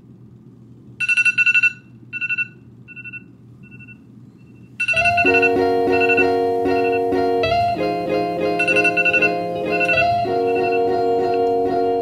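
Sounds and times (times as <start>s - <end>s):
phone alarm beeping: 1.0s - 4.0s, 4.8s - 7.2s, 8.6s - 11.4s
plucked guitar music: 4.9s - 12.0s.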